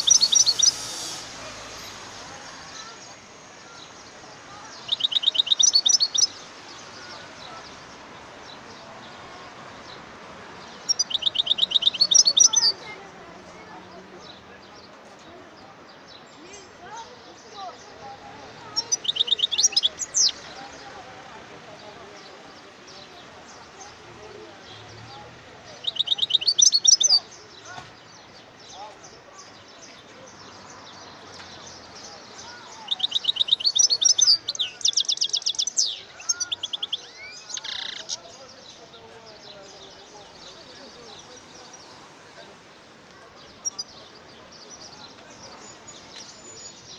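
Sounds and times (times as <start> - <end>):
goldfinch singing: 0.0 - 7.7, 10.8 - 12.9, 18.5 - 21.0, 25.8 - 27.4, 31.6 - 38.8.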